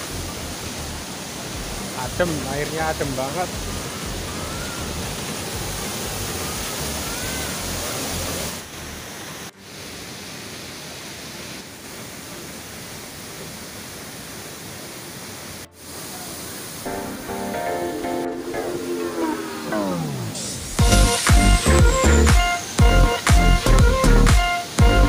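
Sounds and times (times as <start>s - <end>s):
waterfall rushing: 0.0s - 25.0s
music: 1.6s - 7.0s, 16.9s - 25.0s.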